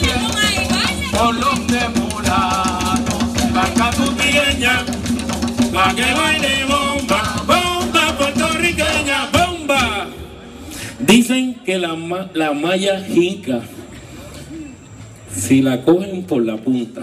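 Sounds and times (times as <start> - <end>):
people singing: 0.0 - 10.2
barrel drums playing rhythm: 0.0 - 11.4.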